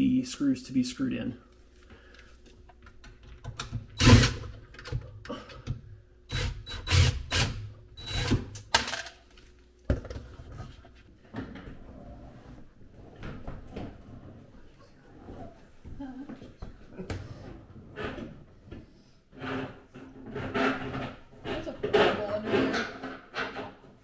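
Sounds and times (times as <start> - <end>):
dishwasher scraping and knocking: 19.4 - 24.0.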